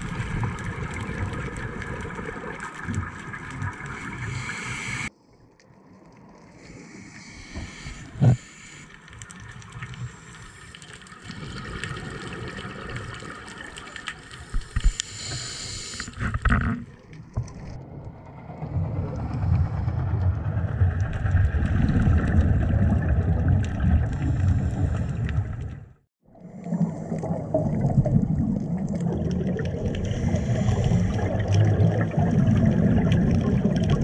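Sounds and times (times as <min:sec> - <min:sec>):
underwater crackle of clicks: 0:00.0 - 0:18.2
rumble of water and bubbles: 0:00.0 - 0:34.0.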